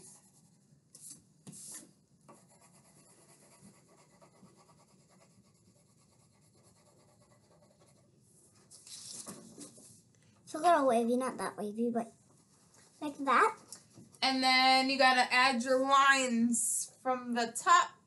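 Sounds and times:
marker scratching on paper: 0.0s - 10.0s, 12.2s - 14.4s.

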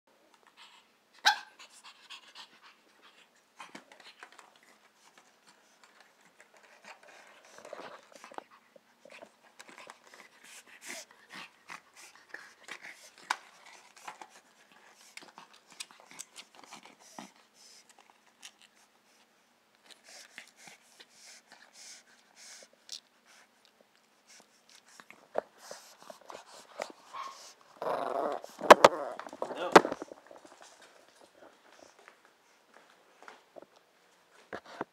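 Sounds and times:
dog panting: 1.6s - 27.8s.

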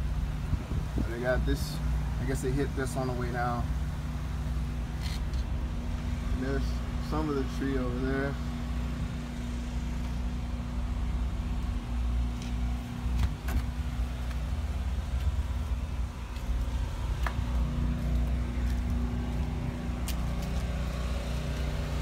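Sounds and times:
low machine hum: 0.0s - 22.0s.

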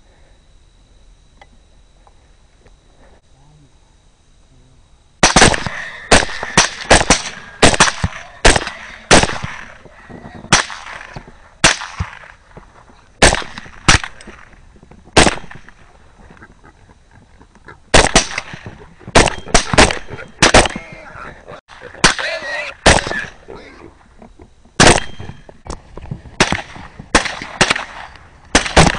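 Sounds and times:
rapid rifle fire: 5.2s - 9.8s, 10.5s - 12.4s, 13.2s - 14.6s, 15.2s - 15.9s, 17.9s - 21.0s, 21.7s - 23.4s, 24.8s - 25.5s, 26.4s - 28.9s.

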